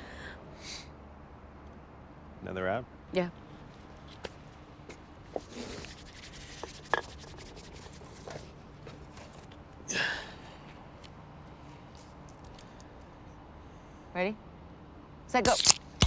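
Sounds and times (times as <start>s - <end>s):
short hiss: 15.4s - 16.0s.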